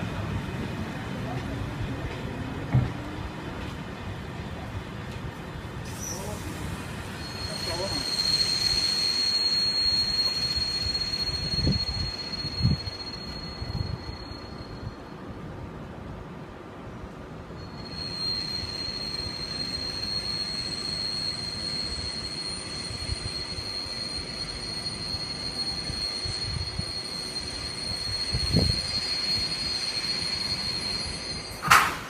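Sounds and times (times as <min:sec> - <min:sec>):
rumble of rolling train: 0:00.0 - 0:32.0
train wheels squealing on rails: 0:00.4 - 0:15.5, 0:17.5 - 0:32.0
thump: 0:02.7 - 0:03.0, 0:31.6 - 0:32.0.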